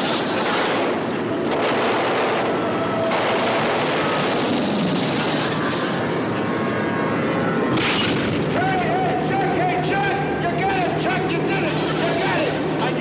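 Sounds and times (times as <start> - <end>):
boat engines droning: 0.0 - 13.0.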